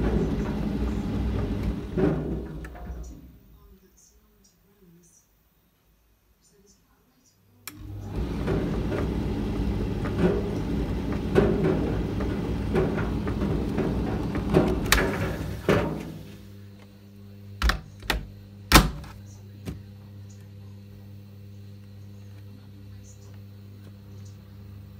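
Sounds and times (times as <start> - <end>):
tumble dryer rumbling and knocking: 0.0 - 3.4, 7.7 - 16.4
steady electrical hum: 0.0 - 24.9.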